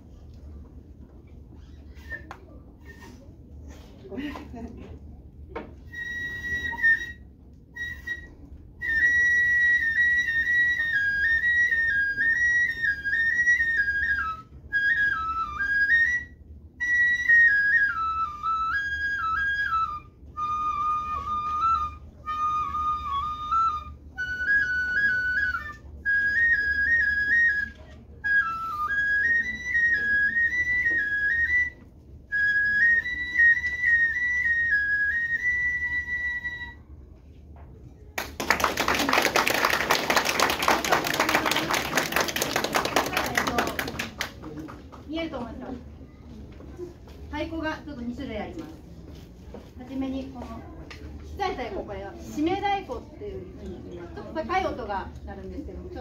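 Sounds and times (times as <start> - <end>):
bamboo flute solo melody: 1.6 - 3.2, 5.6 - 37.2.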